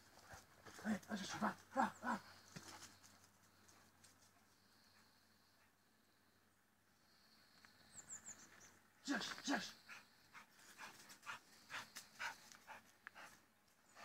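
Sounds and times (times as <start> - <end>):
dog panting hard: 9.9 - 13.4.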